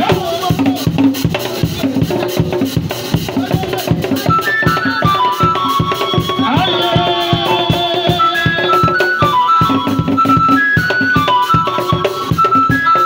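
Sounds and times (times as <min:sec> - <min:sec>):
wooden drums beaten quickly: 0:00.0 - 0:13.0
held high melody notes: 0:03.3 - 0:13.0.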